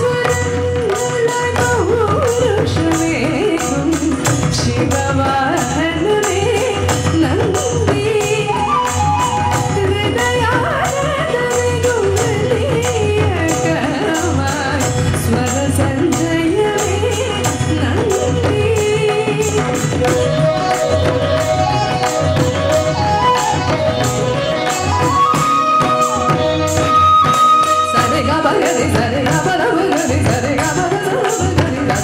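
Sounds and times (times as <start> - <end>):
hand percussion beat: 0.0 - 32.0
bamboo flute melody: 8.5 - 10.6, 19.9 - 29.0.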